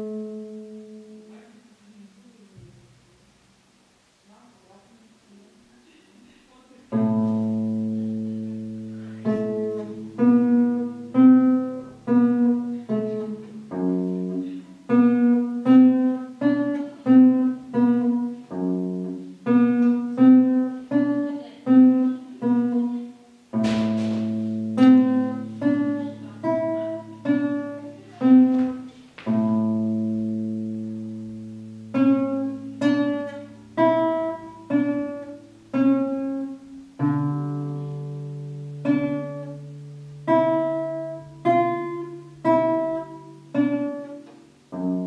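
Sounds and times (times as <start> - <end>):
classical guitar playing: 0.0 - 1.4, 6.9 - 45.0.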